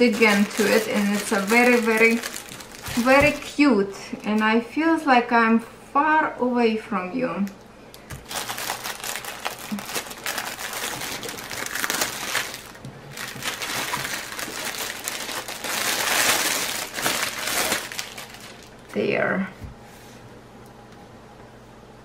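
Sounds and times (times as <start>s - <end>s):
plastic wrap crinkling: 0.0s - 4.4s, 8.1s - 18.9s.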